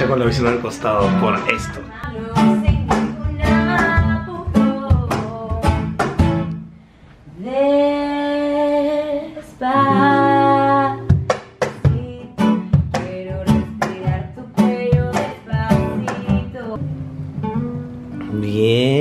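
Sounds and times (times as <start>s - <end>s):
cajon strikes: 0.0s - 6.5s, 11.0s - 16.6s
acoustic guitar strummed: 0.0s - 6.7s, 9.8s - 19.0s.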